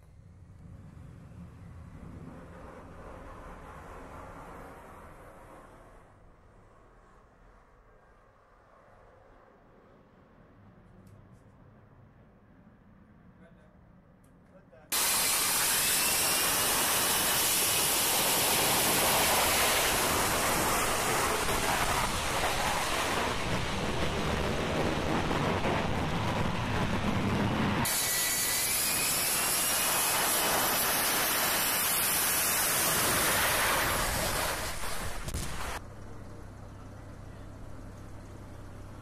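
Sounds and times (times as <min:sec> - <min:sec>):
jet engine roaring: 0:14.9 - 0:35.8.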